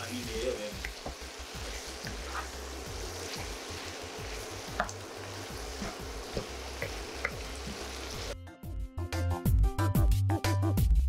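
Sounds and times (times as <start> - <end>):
chicken sizzling in oil: 0.0 - 8.4
wooden spatula scraping pan: 1.1 - 7.0.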